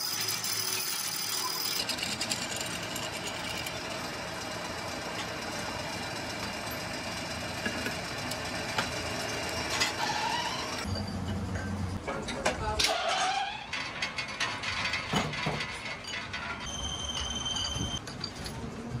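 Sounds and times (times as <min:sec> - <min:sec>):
workshop machinery humming: 0:00.0 - 0:12.8.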